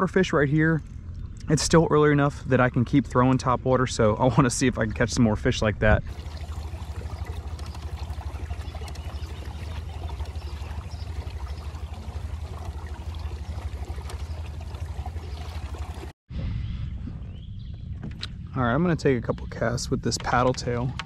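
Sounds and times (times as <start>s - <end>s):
steady low rumble: 0.0s - 21.0s
water trickling along kayak hull: 6.1s - 16.2s, 20.0s - 21.0s.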